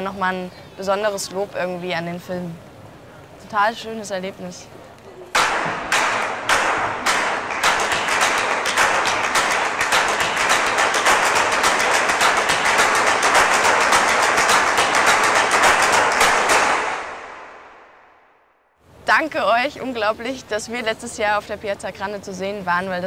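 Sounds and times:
hands clapping: 0:05.4 - 0:17.2.

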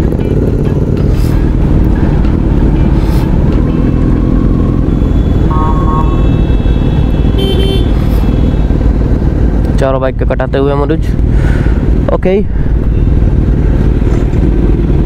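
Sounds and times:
motorcycle engine: 0:00.0 - 0:09.9, 0:11.5 - 0:15.0
wind rush on microphone: 0:00.0 - 0:15.0
vehicle horn toots: 0:05.0 - 0:08.7.

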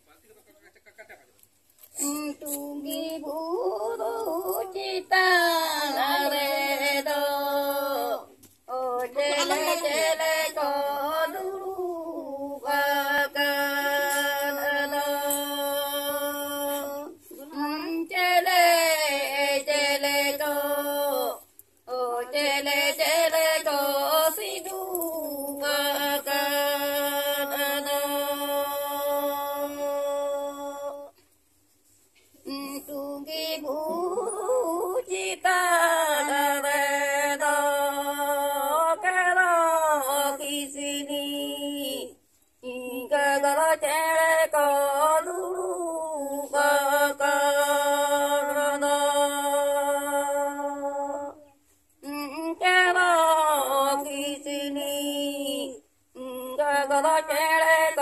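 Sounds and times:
person singing unaccompanied: 0:01.9 - 0:31.2, 0:32.3 - 0:58.0
person chant-like singing: 0:09.1 - 0:17.5.

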